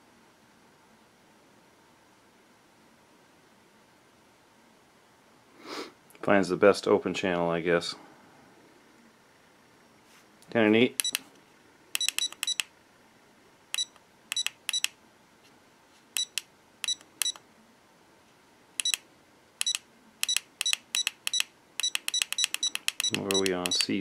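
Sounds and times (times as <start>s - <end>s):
short high-pitched electronic beeps: 12.0s - 12.7s, 13.8s - 14.9s, 16.2s - 17.4s, 18.8s - 19.0s, 19.6s - 24.0s.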